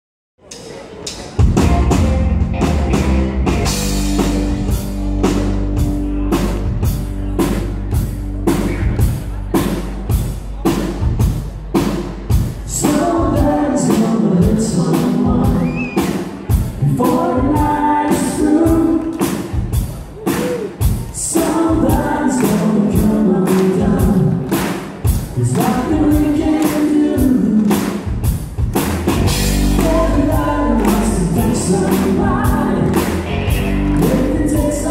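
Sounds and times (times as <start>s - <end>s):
keyboard: 0.4s - 34.9s
drum kit beat: 0.5s - 34.9s
electric guitar: 1.4s - 9.8s, 28.8s - 34.9s
man singing: 12.6s - 19.5s, 20.3s - 24.6s, 25.2s - 28.0s, 29.3s - 34.9s.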